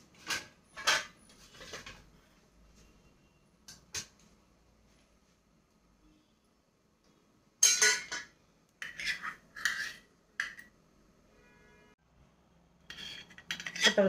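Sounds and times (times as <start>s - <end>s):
spoon scraping a container: 8.8s - 10.7s, 12.9s - 14.0s.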